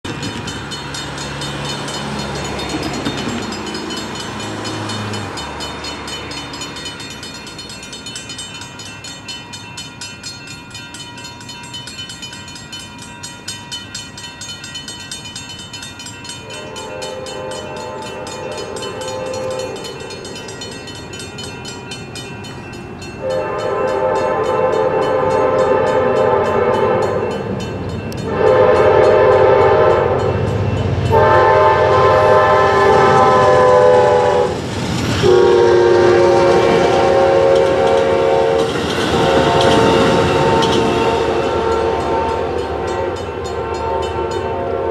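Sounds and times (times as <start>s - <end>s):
train passing crossing: 0.0s - 44.9s
mechanical crossing bells ringing: 0.1s - 34.3s, 35.6s - 44.9s
electronic crossing bell: 0.3s - 34.2s, 36.2s - 44.9s
train horn blasts: 16.4s - 20.0s, 23.2s - 27.5s, 28.2s - 44.9s.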